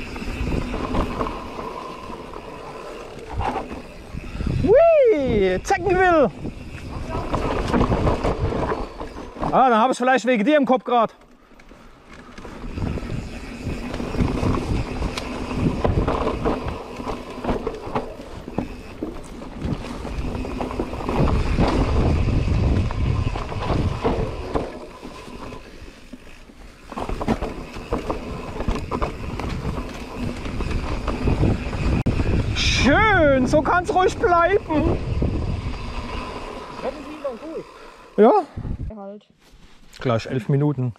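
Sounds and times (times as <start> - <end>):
bike rattling and knocking: 0.0 - 4.7, 5.3 - 38.0
tyres rolling over earth: 0.0 - 4.9, 5.6 - 10.5, 12.2 - 38.4
wind on microphone: 3.1 - 9.1, 12.6 - 17.6, 19.6 - 24.7, 27.1 - 36.9, 38.6 - 39.0.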